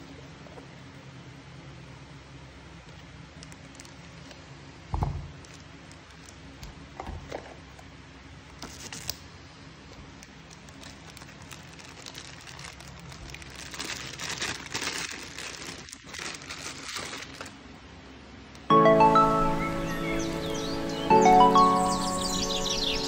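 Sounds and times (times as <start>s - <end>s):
plastic wrapping crinkling: 3.3s - 4.5s, 5.3s - 6.6s, 10.0s - 17.6s.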